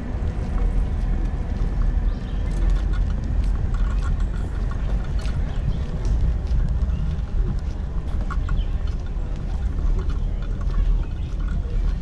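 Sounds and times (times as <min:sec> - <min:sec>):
footsteps on asphalt: 0:00.0 - 0:12.0
low rumble on microphone: 0:00.0 - 0:12.0
stroller wheels rolling: 0:00.0 - 0:12.0.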